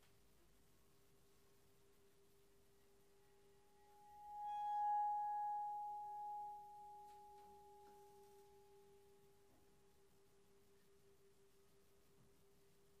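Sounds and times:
low steady tone: 0.3 - 13.0
metal singing bowl ringing: 4.1 - 8.7.

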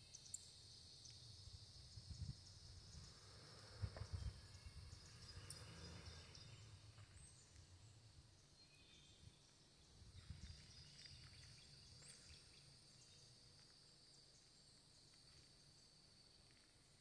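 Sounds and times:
high insect drone: 0.0 - 8.4
faint bird chirps: 0.0 - 17.0
low rumble on microphone: 1.4 - 7.4, 9.2 - 11.4.

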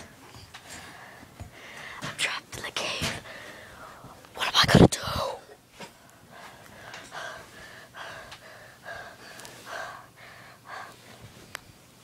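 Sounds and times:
person panting: 0.7 - 2.1, 3.2 - 4.2, 6.2 - 11.2.

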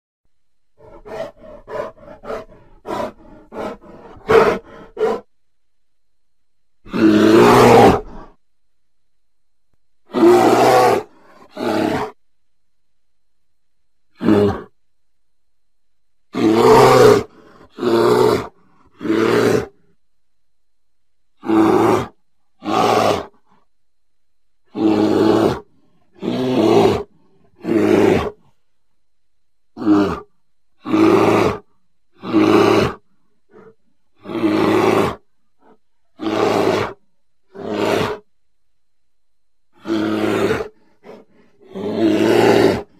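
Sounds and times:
bear grunting: 0.8 - 5.3, 6.8 - 8.4, 10.0 - 12.2, 14.1 - 14.8, 16.3 - 19.9, 21.4 - 23.6, 24.7 - 28.6, 29.8 - 38.3, 39.7 - 42.9
bear roaring: 0.8 - 5.3, 6.9 - 8.4, 10.0 - 12.2, 14.1 - 14.8, 16.3 - 19.9, 21.4 - 23.5, 24.7 - 28.5, 29.8 - 38.3, 39.7 - 42.9.

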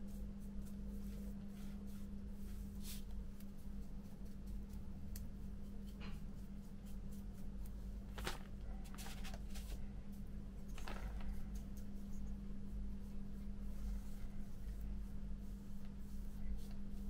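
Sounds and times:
steady low hum: 0.0 - 17.0
light taps on newspaper: 7.6 - 9.8
rustles of handling small parts: 7.6 - 12.3.

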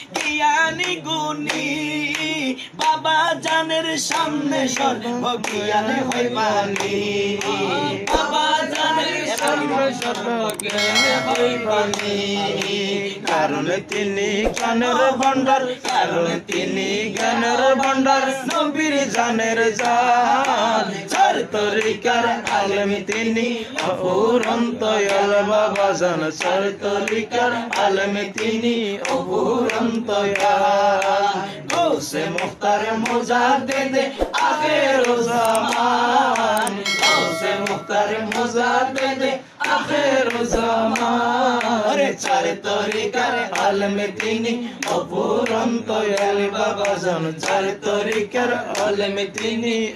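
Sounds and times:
hand claps: 0.0 - 49.9
man singing: 0.0 - 49.9.

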